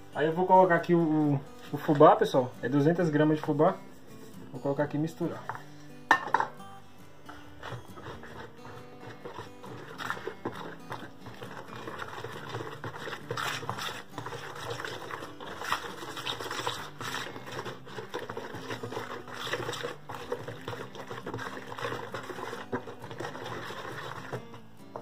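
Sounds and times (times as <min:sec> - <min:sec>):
whisk beating batter in bowl: 0:07.3 - 0:25.0.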